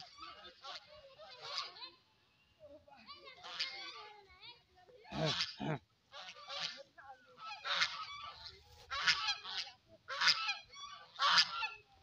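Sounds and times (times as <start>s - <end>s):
geese honking: 5.1s - 11.9s.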